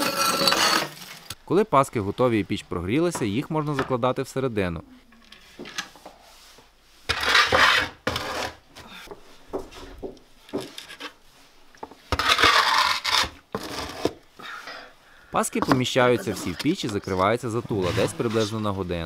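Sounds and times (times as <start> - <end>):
bread peel scraping oven floor: 7.1 - 8.6.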